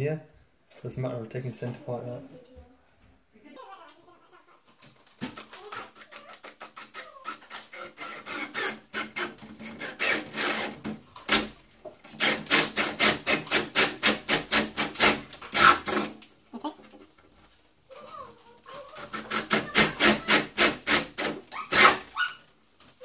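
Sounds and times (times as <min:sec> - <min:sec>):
cordless drill boring into wood: 0:06.5 - 0:11.5, 0:12.1 - 0:16.2, 0:19.0 - 0:22.0.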